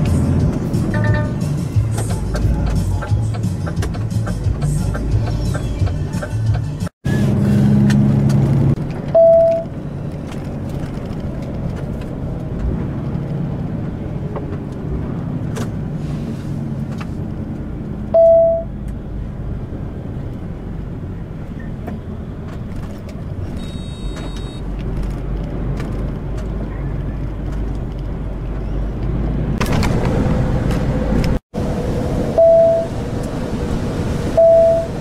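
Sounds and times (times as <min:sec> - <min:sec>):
truck engine and road noise: 0:00.0 - 0:35.0
short beeps: 0:09.2 - 0:09.7, 0:18.2 - 0:18.7, 0:23.6 - 0:24.6, 0:32.4 - 0:32.9, 0:34.4 - 0:34.9.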